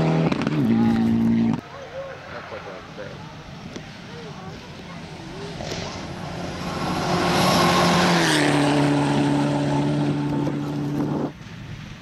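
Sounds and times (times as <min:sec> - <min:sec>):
rally car engine at high revs: 0:00.0 - 0:01.6, 0:05.0 - 0:11.3.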